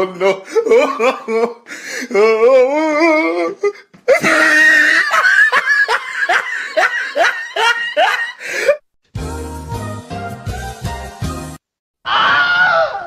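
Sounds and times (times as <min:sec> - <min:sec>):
person laughing: 0:00.0 - 0:02.8, 0:04.1 - 0:08.8
loud shriek: 0:12.1 - 0:13.0.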